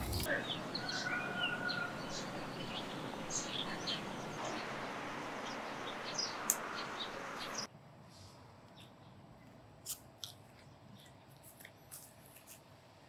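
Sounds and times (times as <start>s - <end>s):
outdoor background hiss: 0.0s - 13.0s
birds chirping: 0.2s - 7.7s.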